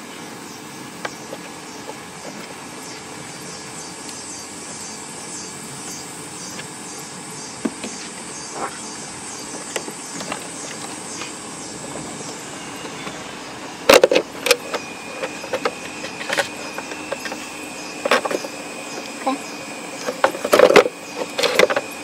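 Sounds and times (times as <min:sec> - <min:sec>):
plastic clicks and clatter: 0:13.9 - 0:17.4, 0:20.0 - 0:21.9.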